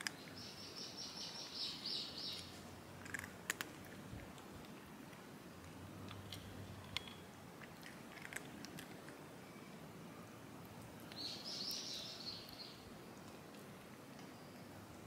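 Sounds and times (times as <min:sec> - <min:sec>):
cats eating from metal dishes: 0:00.0 - 0:01.6, 0:02.3 - 0:09.3.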